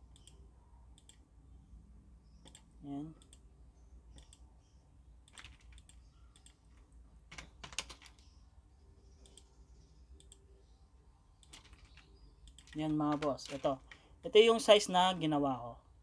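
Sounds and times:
computer mouse and keyboard clicks: 2.4 - 3.4, 5.2 - 8.4, 9.1 - 10.5, 11.4 - 14.0.

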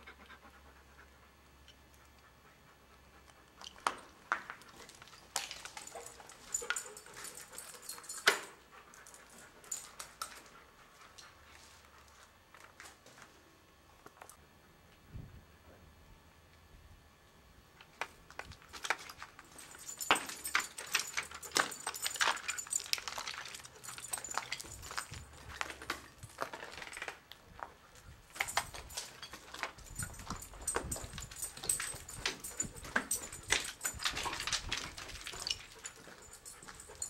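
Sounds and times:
footsteps crunching over debris: 3.8 - 6.8, 18.3 - 36.8.

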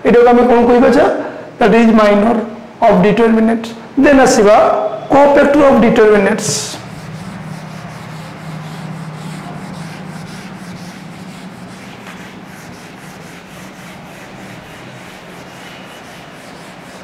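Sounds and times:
steady low hum: 6.0 - 17.0
eraser rubbing on whiteboard: 6.5 - 17.0.

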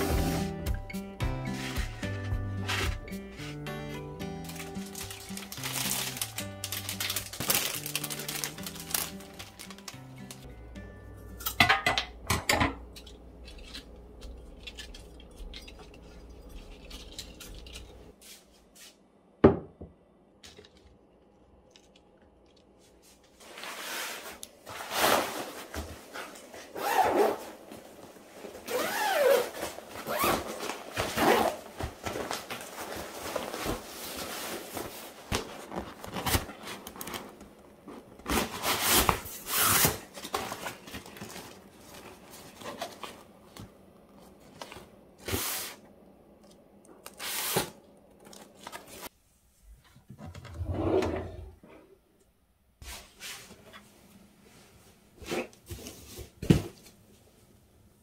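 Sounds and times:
drawer sliding open: 50.2 - 51.6.

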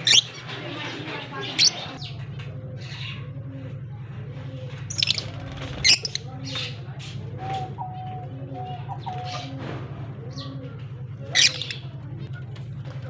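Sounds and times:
lovebirds chirping: 0.0 - 3.3, 4.7 - 6.9, 11.2 - 12.0
low hum: 0.0 - 13.0.

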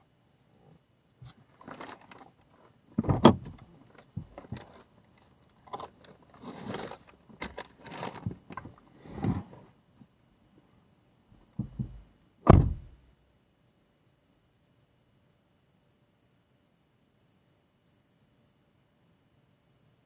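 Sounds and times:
bag rustling and scraping: 1.5 - 2.8, 5.6 - 9.7
knock: 11.6 - 13.0.

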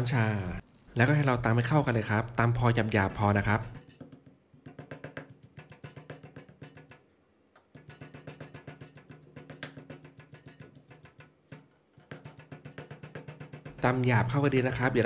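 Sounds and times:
pestle pounding in stone mortar: 2.6 - 7.1, 7.7 - 15.0.

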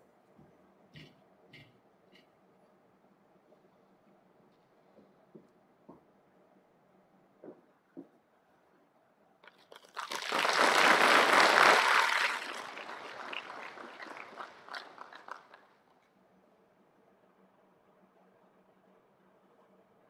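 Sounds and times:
audience clapping: 9.8 - 15.7.

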